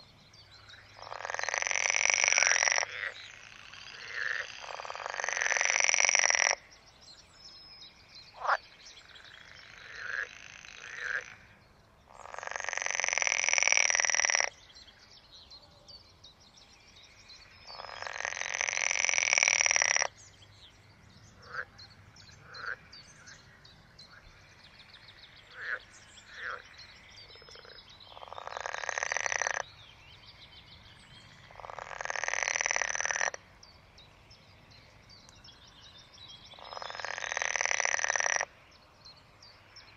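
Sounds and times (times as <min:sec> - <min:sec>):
frogs rattling croaks: 0:00.6 - 0:06.8, 0:08.3 - 0:11.5, 0:12.1 - 0:14.7, 0:17.4 - 0:20.2, 0:21.4 - 0:21.8, 0:22.4 - 0:29.8, 0:31.4 - 0:35.5, 0:36.4 - 0:38.8
short single frog croaks: 0:01.0 - 0:06.7.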